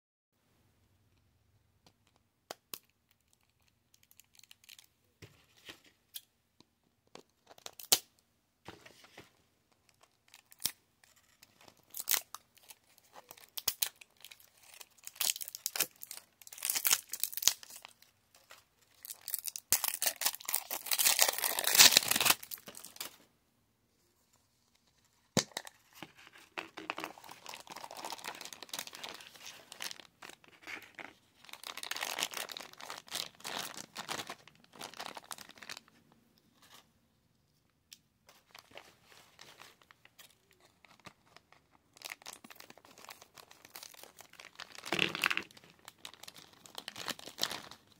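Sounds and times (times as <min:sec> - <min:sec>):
plastic wrapping crinkling and tearing: 0:09.9 - 0:23.2, 0:26.8 - 0:36.0, 0:38.5 - 0:47.9.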